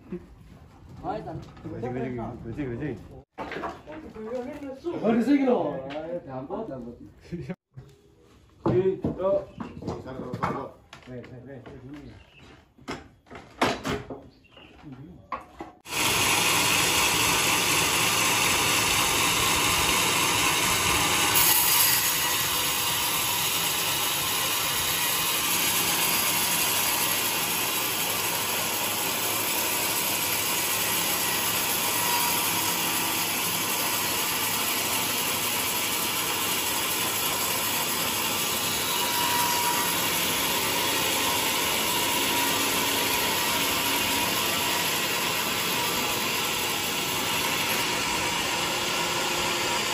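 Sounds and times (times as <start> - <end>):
band sawmill cutting log: 15.9 - 49.9.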